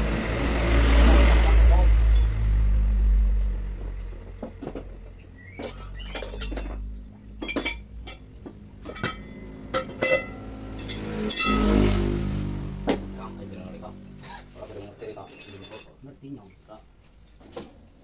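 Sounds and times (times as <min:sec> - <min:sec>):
metal tools clinking: 0:05.6 - 0:11.8, 0:15.0 - 0:16.0.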